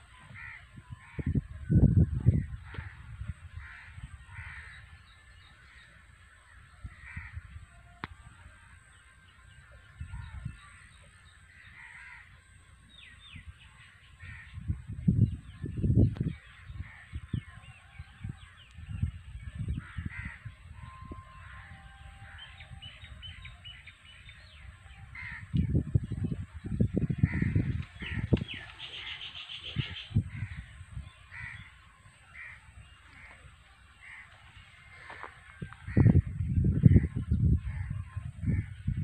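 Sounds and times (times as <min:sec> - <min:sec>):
low rumbling microphone noise: 0:00.0 - 0:39.0
crows cawing: 0:00.3 - 0:01.3, 0:02.6 - 0:04.9, 0:05.7 - 0:07.6, 0:11.5 - 0:12.4, 0:19.8 - 0:20.5, 0:25.1 - 0:25.5, 0:31.3 - 0:36.2
small birds chirping and trilling: 0:08.7 - 0:39.0.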